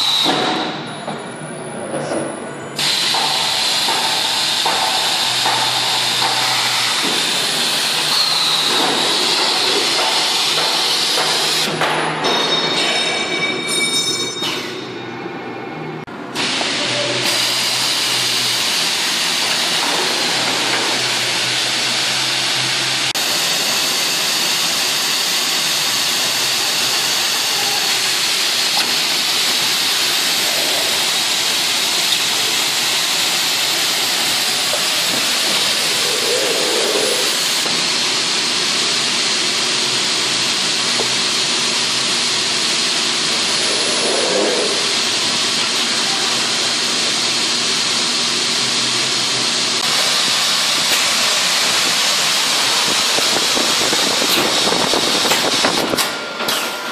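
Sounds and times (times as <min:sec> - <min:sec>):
pneumatic machine hissing: 0:00.0 - 0:00.9, 0:02.8 - 0:11.8, 0:16.4 - 0:37.9, 0:42.8 - 0:46.8, 0:49.8 - 0:56.9.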